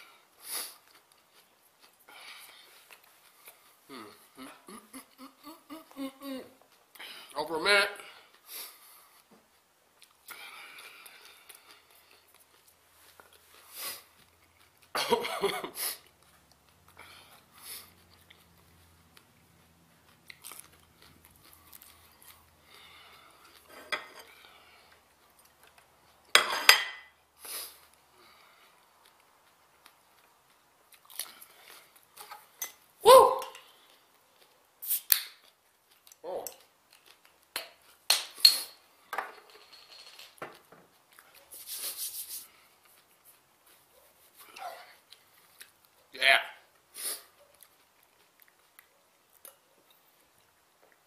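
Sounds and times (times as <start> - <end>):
chewing crunchy peppers: 8.3 - 15.2, 15.8 - 26.3, 27.3 - 32.9, 33.6 - 38.0, 42.5 - 51.0.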